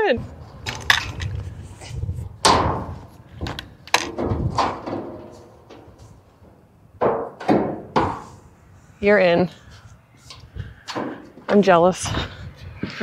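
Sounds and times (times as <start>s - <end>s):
hollow bangs inside metal tank: 2.4s - 3.0s.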